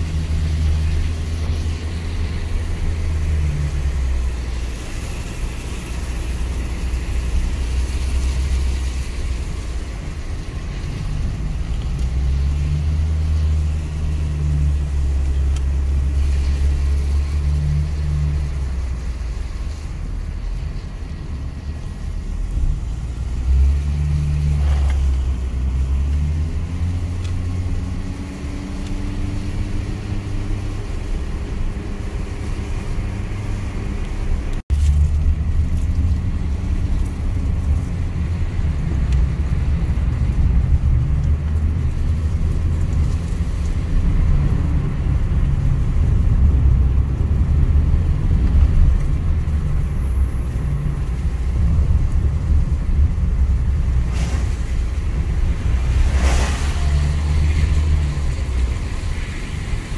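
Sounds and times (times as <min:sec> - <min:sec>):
car engine and tyre drone: 0:00.0 - 0:59.9.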